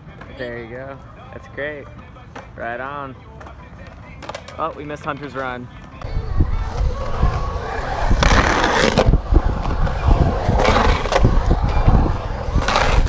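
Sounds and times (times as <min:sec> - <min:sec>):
skateboard wheels rolling: 0:00.0 - 0:13.0
skateboard rough scraping: 0:06.2 - 0:13.0.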